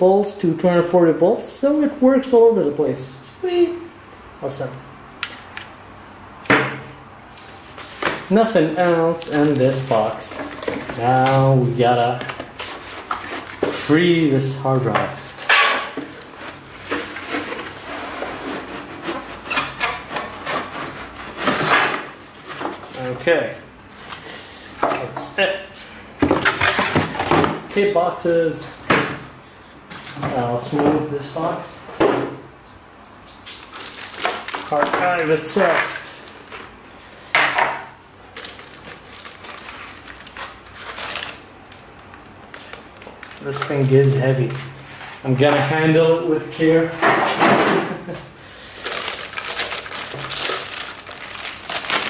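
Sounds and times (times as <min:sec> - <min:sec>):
plastic packaging rustling and crinkling: 0:07.3 - 0:24.2, 0:33.3 - 0:36.8, 0:38.2 - 0:46.0, 0:48.6 - 0:52.0.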